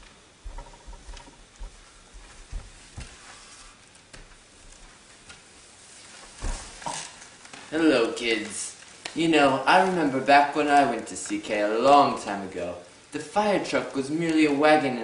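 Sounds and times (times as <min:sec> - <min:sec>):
footsteps: 0:00.0 - 0:10.1
clothing rustle: 0:00.0 - 0:10.2.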